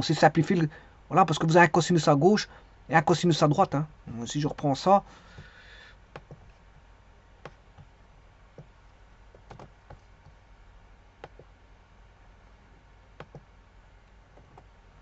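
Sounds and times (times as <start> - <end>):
low room hum: 0.0 - 15.0
computer mouse clicking: 6.1 - 6.6, 7.4 - 7.9, 8.6 - 10.4, 11.2 - 11.5, 13.2 - 14.7.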